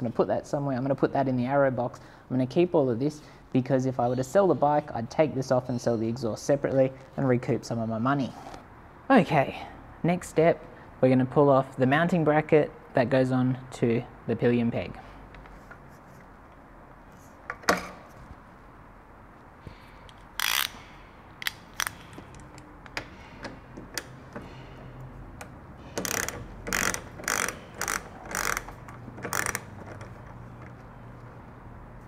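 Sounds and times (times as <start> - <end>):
ratchet wrench clicking: 20.1 - 23.1, 25.4 - 30.2.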